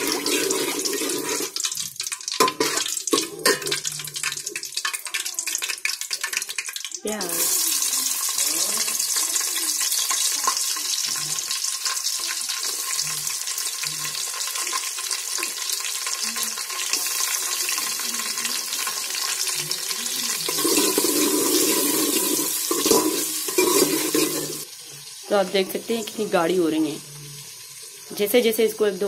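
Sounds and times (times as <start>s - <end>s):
onions sizzling in hot oil: 0.0s - 29.0s
spoon stirring in metal pot: 0.1s - 5.0s, 20.4s - 24.7s.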